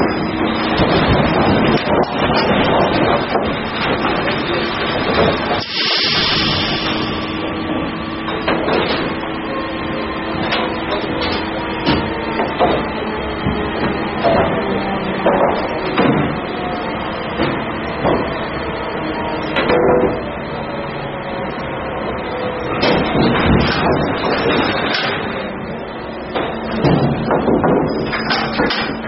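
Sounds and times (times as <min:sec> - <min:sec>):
machine hum: 0:00.0 - 0:29.0
wooden boards clattering: 0:10.4 - 0:18.4, 0:22.8 - 0:25.4, 0:26.3 - 0:29.0.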